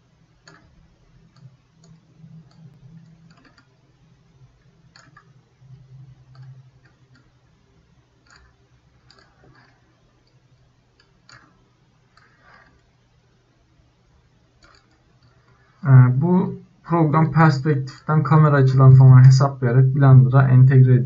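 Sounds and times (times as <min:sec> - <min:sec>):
low steady hum: 0:00.0 - 0:21.0
computer mouse clicks: 0:00.4 - 0:03.8, 0:04.6 - 0:07.4, 0:08.2 - 0:10.4, 0:14.6 - 0:15.8.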